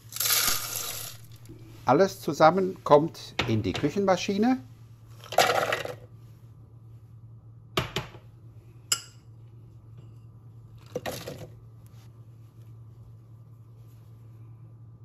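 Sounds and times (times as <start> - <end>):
dates rattling into plastic bowl: 0.0 - 1.4, 5.2 - 6.0
steady low hum: 0.0 - 15.0.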